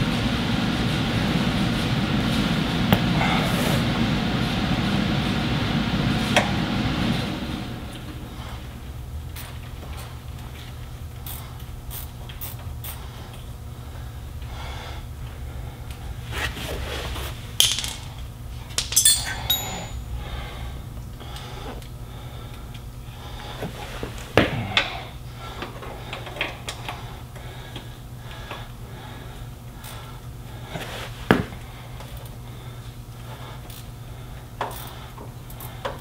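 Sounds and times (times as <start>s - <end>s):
steady low hum: 0.0s - 36.0s
hand tools clinking on metal: 18.8s - 20.1s.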